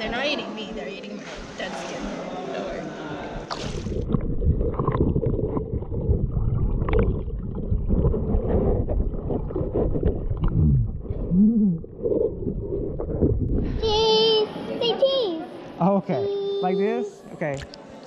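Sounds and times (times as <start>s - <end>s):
muffled underwater water churning: 3.4s - 13.8s.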